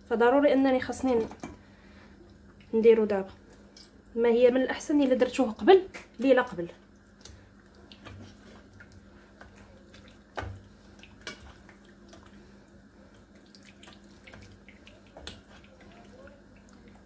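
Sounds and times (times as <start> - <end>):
hands squelching wet marinade: 7.0 - 17.0.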